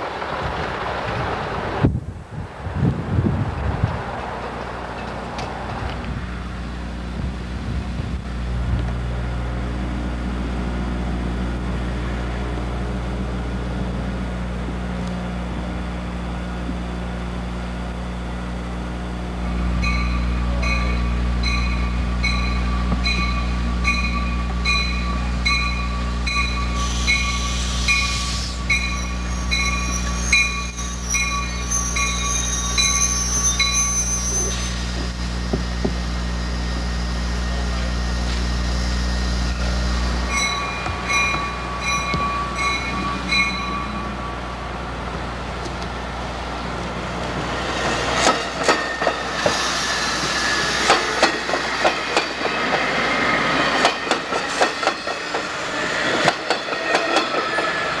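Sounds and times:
electric train humming: 0.2 - 58.0
wind noise on microphone: 0.3 - 4.3, 7.1 - 9.0.

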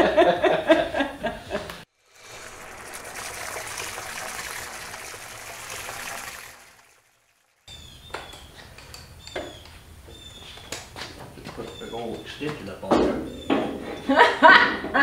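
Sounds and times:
rush of splashing water: 1.9 - 7.7.

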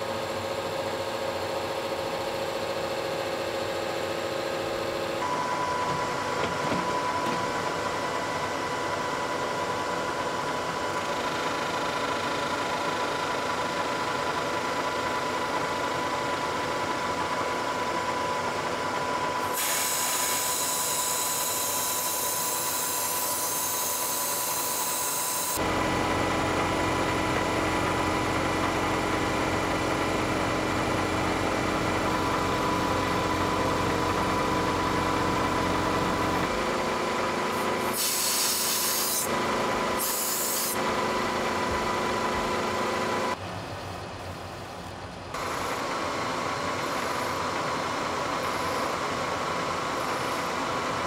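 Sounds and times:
grinding wheel whine: 0.0 - 43.4, 45.4 - 51.0
grinding wheel hissing on steel: 19.4 - 25.6, 37.4 - 41.3.

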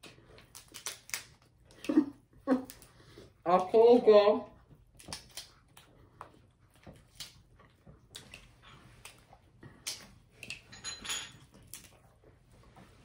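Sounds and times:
close chewing: 0.0 - 3.8, 4.4 - 10.7, 11.3 - 13.0
lobster shells cracking: 0.5 - 1.4.

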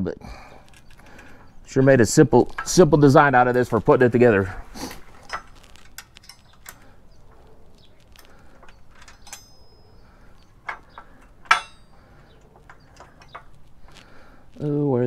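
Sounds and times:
steel parts clicking and clinking: 0.5 - 14.0
sharp metal clank: 10.7 - 12.0.

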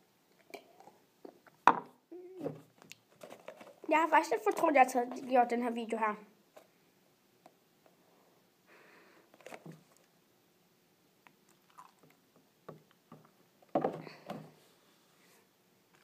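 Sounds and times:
person gulping: 0.4 - 1.6, 11.3 - 12.2.

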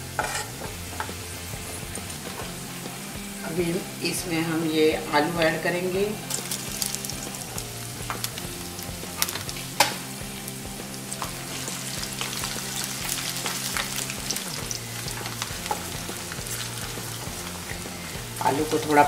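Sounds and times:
potatoes sizzling in hot oil: 0.0 - 19.0
wooden spatula scraping a pan: 0.1 - 1.2.

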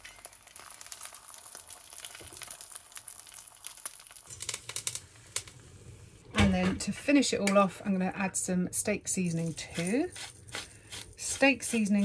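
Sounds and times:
egg sizzling in a pan: 0.0 - 5.6
spatula scraping a pan: 9.5 - 12.0.

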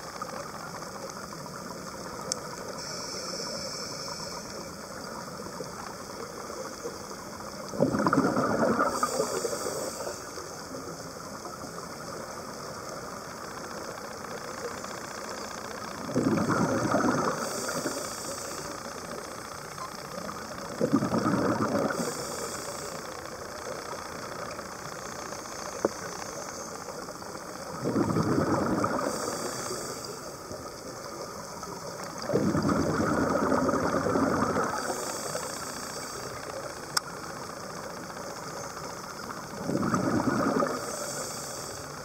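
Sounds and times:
regulator hiss: 0.0 - 42.0
steady background hiss: 0.0 - 42.0
exhaled bubbles underwater: 4.9 - 10.1, 15.9 - 18.2, 20.6 - 22.4, 27.0 - 35.5, 38.8 - 42.0.

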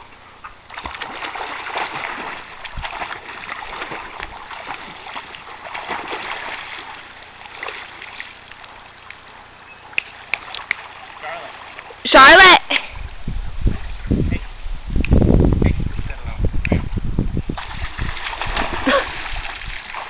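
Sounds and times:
dog splashing in water: 0.7 - 8.3, 17.6 - 20.0.

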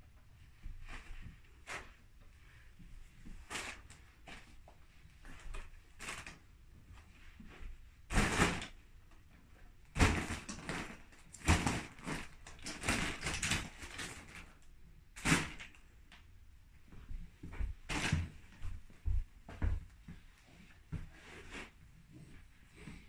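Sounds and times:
foil balloon crinkling: 10.0 - 14.6.

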